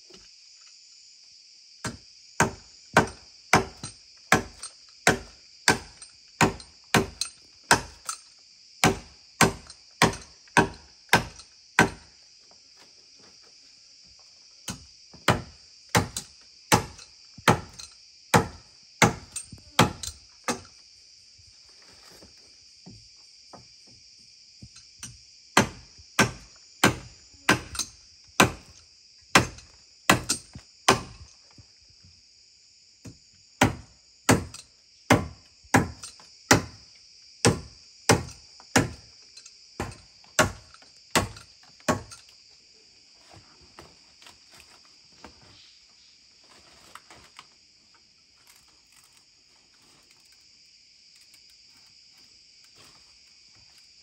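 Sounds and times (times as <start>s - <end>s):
high insect drone: 0.0s - 54.0s
hand tool chopping into earth: 1.8s - 8.2s, 8.8s - 12.1s, 14.7s - 20.6s, 25.6s - 31.2s, 33.6s - 36.8s, 37.4s - 39.1s, 39.8s - 42.2s.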